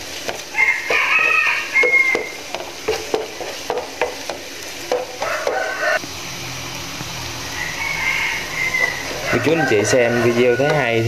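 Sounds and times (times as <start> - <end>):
food sizzling in oil: 0.0 - 11.0
spatula tapping and scraping pan: 0.2 - 5.7
drawn-out pitched call: 7.5 - 11.0.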